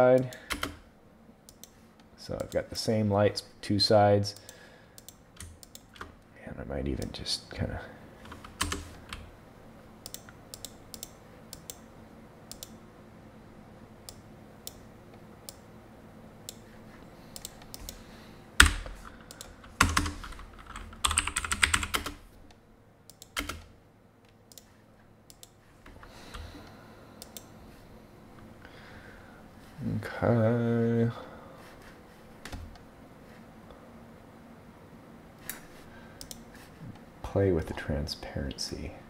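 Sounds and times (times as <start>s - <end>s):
faint steady hum: 0.0s - 39.0s
keyboard keystrokes and clicks: 0.2s - 0.8s, 4.4s - 6.1s, 8.2s - 9.3s, 10.0s - 11.8s, 18.6s - 22.2s, 23.1s - 23.7s.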